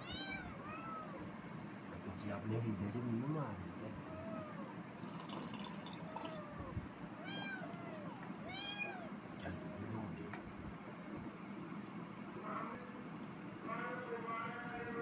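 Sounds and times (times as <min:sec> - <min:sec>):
kittens meowing: 0:00.0 - 0:01.3, 0:03.9 - 0:04.8, 0:05.9 - 0:09.2.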